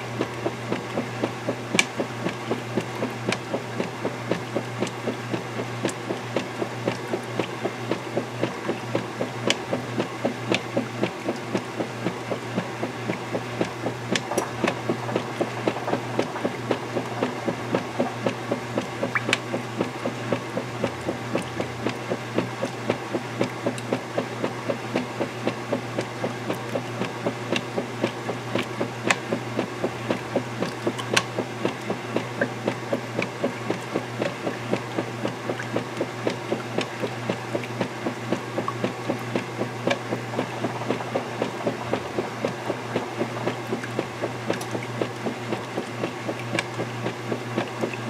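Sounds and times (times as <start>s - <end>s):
motor hum: 0.0s - 48.0s
washing machine sloshing: 0.0s - 48.0s.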